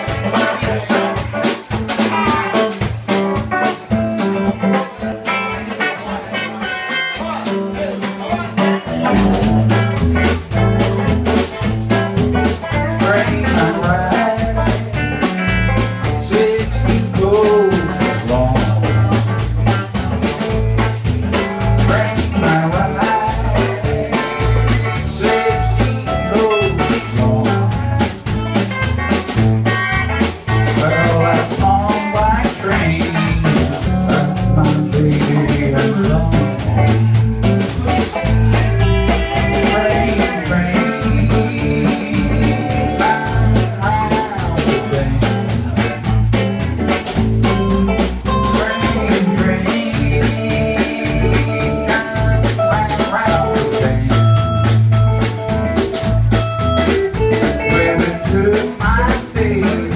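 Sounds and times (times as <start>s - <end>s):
drum kit: 0.0s - 59.9s
electric bass: 0.0s - 59.9s
electric guitar: 0.0s - 59.9s.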